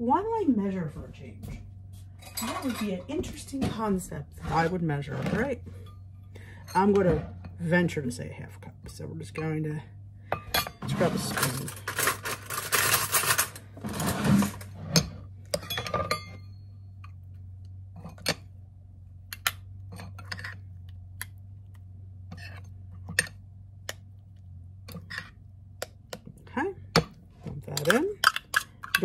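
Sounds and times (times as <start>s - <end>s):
low steady hum: 0.0s - 29.0s
spoon scraping a metal cup: 19.9s - 20.7s, 22.3s - 23.3s, 24.9s - 25.4s.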